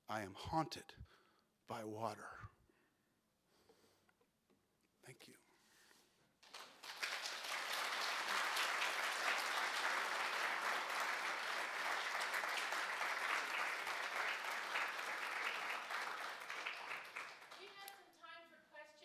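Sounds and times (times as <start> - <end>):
audience applauding: 6.4 - 17.9.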